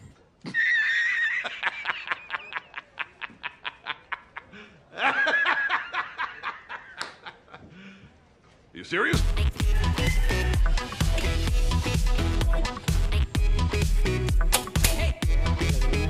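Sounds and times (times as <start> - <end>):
man laughing: 0.4 - 7.7.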